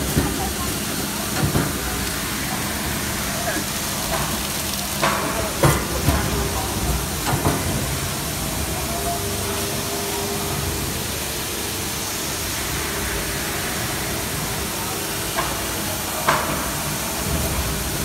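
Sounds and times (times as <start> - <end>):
packaging machine whirring: 0.0 - 11.8.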